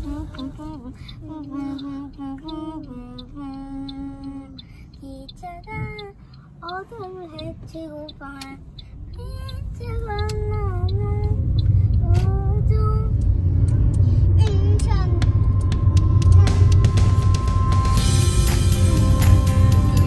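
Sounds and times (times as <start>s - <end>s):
car road noise: 0.0s - 20.0s
child singing: 14.4s - 15.4s.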